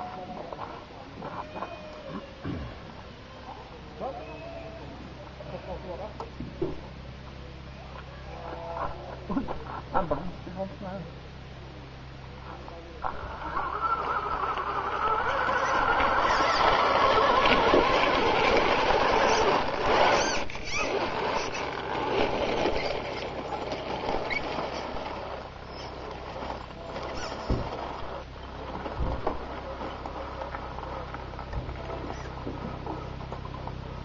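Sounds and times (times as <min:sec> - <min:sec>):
tyres crunching on gravel: 0:12.3 - 0:34.0
toy truck motor whine: 0:13.0 - 0:28.3.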